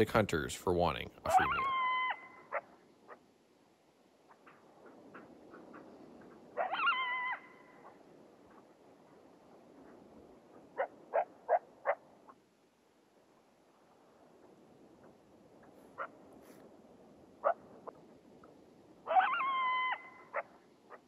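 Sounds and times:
coyote howling: 1.3 - 3.2, 4.3 - 8.2, 10.7 - 12.1, 19.0 - 21.0
coyote barking and yipping: 1.3 - 3.3, 4.2 - 8.6, 9.8 - 12.4, 15.9 - 16.2, 17.4 - 18.0, 19.0 - 21.0.

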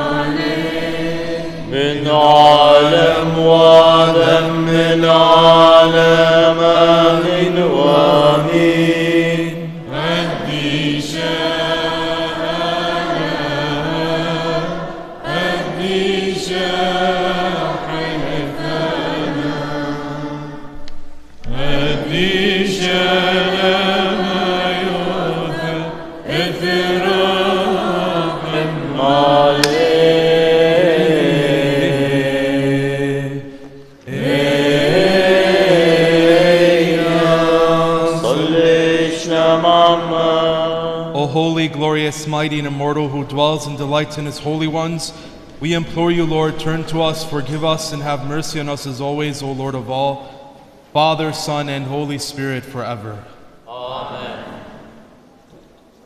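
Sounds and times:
person chanting slow melody: 21.5 - 50.2.

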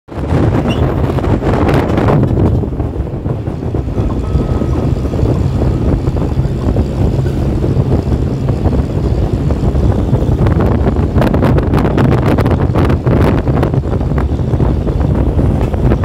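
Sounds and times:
wind on microphone: 0.1 - 16.0
vehicle rumble from inside: 0.2 - 16.0.

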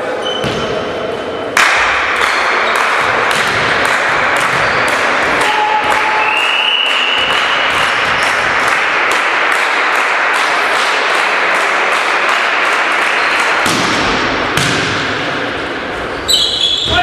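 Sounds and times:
sports hall noise: 0.0 - 17.0
ball thump: 13.6 - 15.2.

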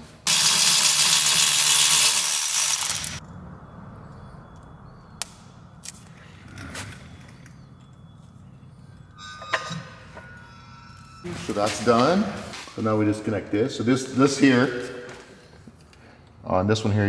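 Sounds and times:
electric ratchet running: 0.2 - 3.2.

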